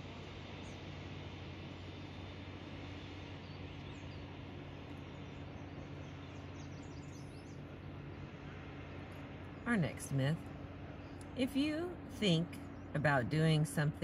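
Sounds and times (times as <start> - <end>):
steady low hum: 0.0 - 14.0
faint high bird chirps: 3.2 - 8.3.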